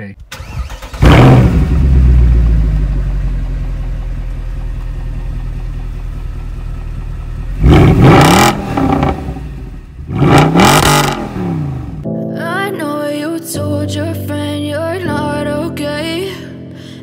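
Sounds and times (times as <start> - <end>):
car engine idling: 0.1 - 12.0
throttle blips revving: 10.1 - 12.0.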